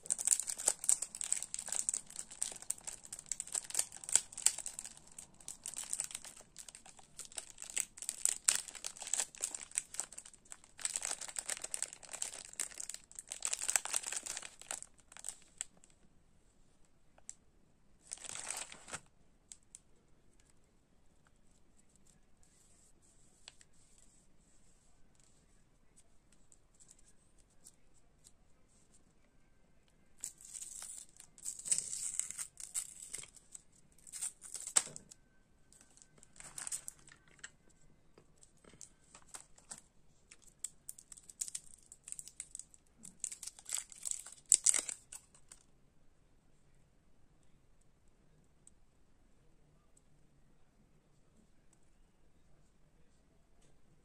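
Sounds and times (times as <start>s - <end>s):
wrapper tearing and crinkling: 0.0s - 15.7s, 18.1s - 19.0s, 30.2s - 35.1s, 35.8s - 37.5s, 40.4s - 45.5s.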